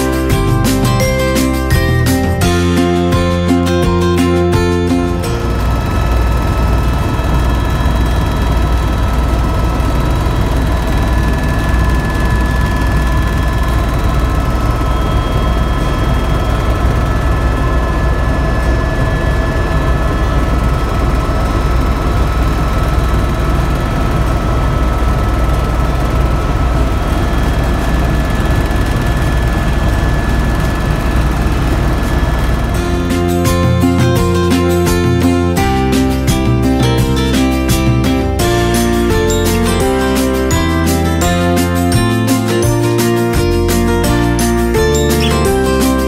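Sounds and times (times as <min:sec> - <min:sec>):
helicopter rotor and engine rumble: 0:00.0 - 0:46.0
high-pitched tones: 0:32.0 - 0:46.0.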